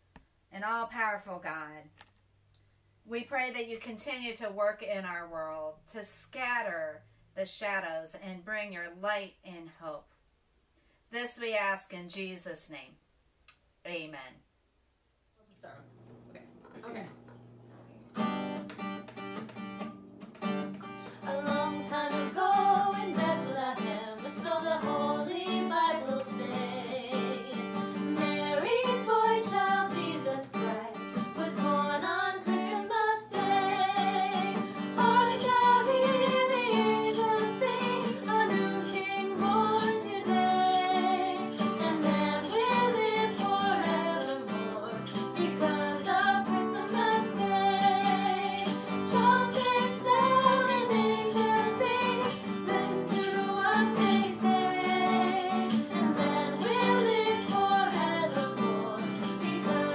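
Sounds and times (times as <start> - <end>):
acoustic guitar: 15.9 - 59.9
hand shaker beat: 18.2 - 25.2, 32.7 - 59.9
women singing in harmony: 21.2 - 59.9.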